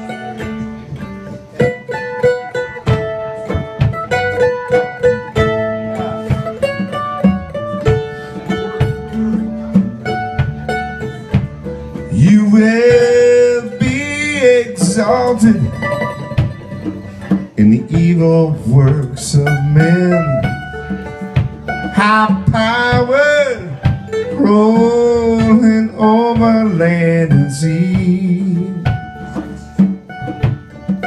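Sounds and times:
drums: 0.0s - 31.0s
fast picked mandolin: 0.0s - 31.0s.

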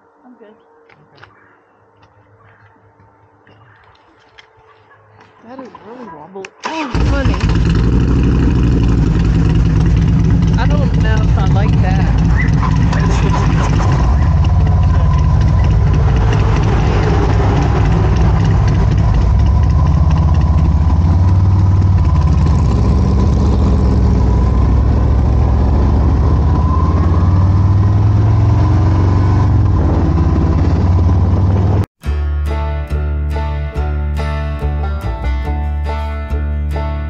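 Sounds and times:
road and wind noise: 0.0s - 31.9s
motorcycle engine running: 6.7s - 31.9s.

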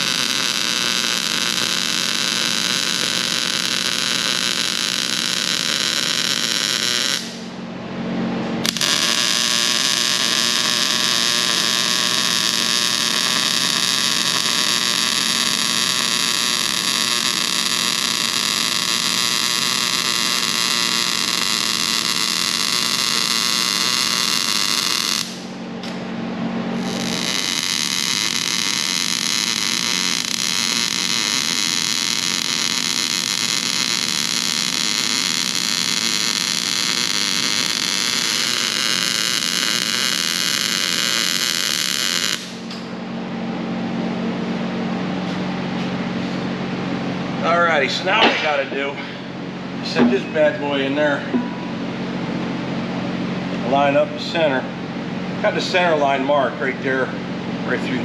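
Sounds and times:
arc welding crackling hiss: 0.0s - 7.5s, 8.6s - 25.5s, 26.8s - 42.8s
low machine hum: 0.0s - 58.0s.

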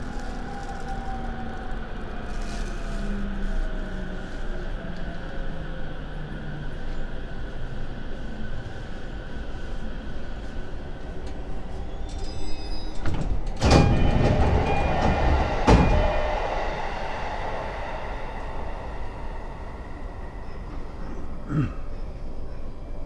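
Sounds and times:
train doors sliding: 11.0s - 18.4s
steady low rumble: 13.6s - 21.6s.

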